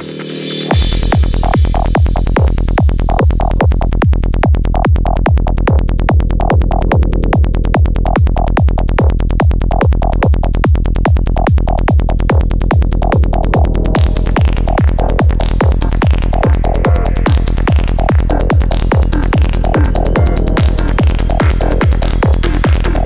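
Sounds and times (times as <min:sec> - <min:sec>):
rolling bassline: 0:00.0 - 0:23.0
kick drum: 0:00.7 - 0:23.0
synth stabs: 0:12.4 - 0:23.0.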